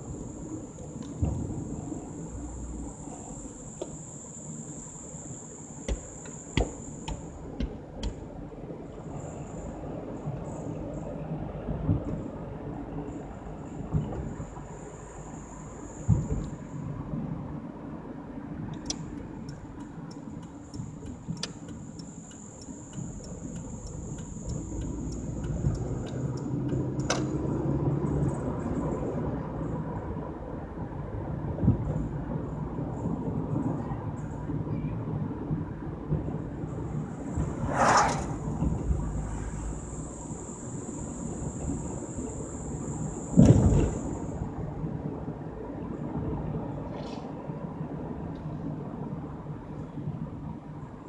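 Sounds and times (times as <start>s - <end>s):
car driving rumble: 0.0s - 51.0s
engine and road noise: 0.0s - 51.0s
turn signal ticking: 5.8s - 8.4s, 18.7s - 27.6s
turn signal cancel click: 18.7s - 27.3s.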